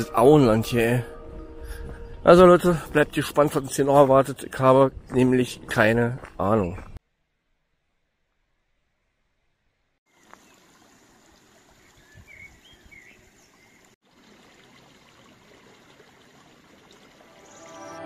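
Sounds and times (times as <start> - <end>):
music: 0.0 - 3.8, 17.2 - 18.0
running stream: 10.1 - 18.0
bird chirps: 11.8 - 13.9.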